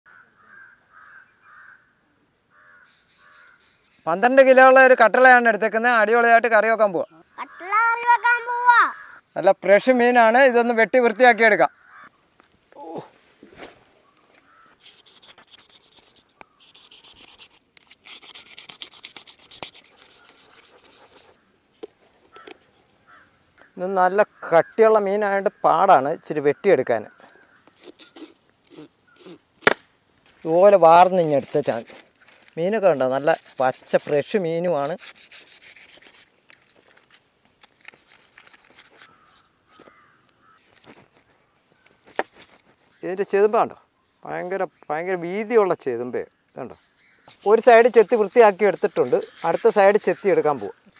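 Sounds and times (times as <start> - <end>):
crow cawing: 0.1 - 3.7, 7.3 - 9.3, 11.7 - 12.2, 14.4 - 14.9, 22.2 - 24.9, 27.0 - 28.3, 39.0 - 40.8
knife scraping fish scales: 14.8 - 21.4, 27.8 - 29.8, 31.0 - 40.0, 47.3 - 50.8.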